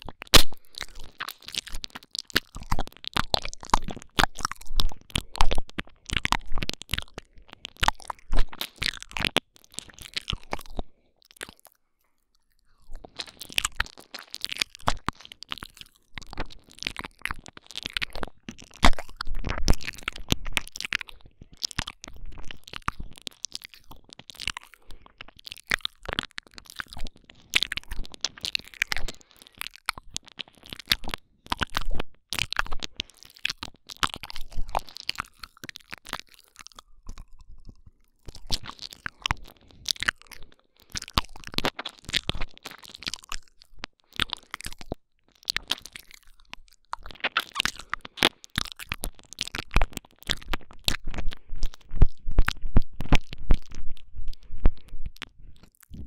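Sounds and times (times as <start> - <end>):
wet mouth smacking and clicking: 0.0 - 56.0.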